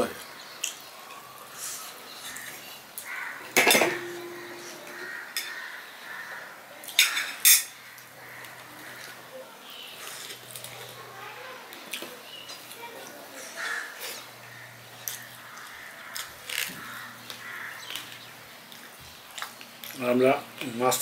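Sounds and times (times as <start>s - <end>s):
spoon clinking on steel plates: 3.6s - 5.6s, 7.0s - 7.8s.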